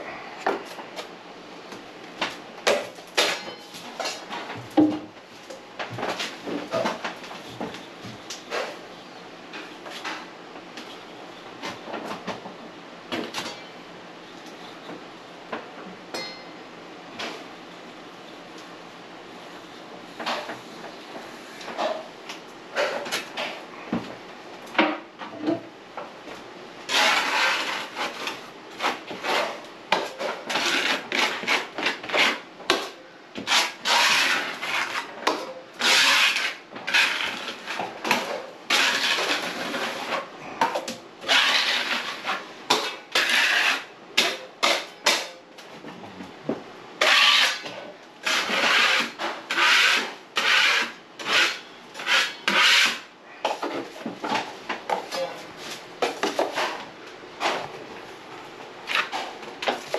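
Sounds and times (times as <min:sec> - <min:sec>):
drywall knife scraping: 0:26.9 - 0:45.3, 0:47.0 - 0:54.0, 0:58.9 - 0:59.9.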